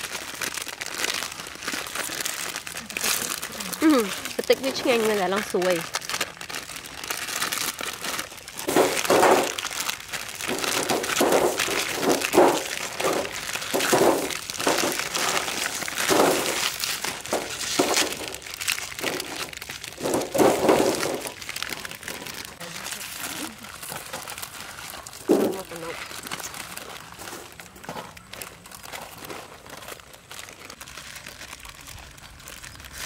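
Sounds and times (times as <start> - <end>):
plastic packets crinkling and tearing: 0.0 - 33.0
noodle blocks dropping on metal tray: 8.6 - 9.6, 10.5 - 15.3, 16.0 - 16.6, 20.0 - 21.2.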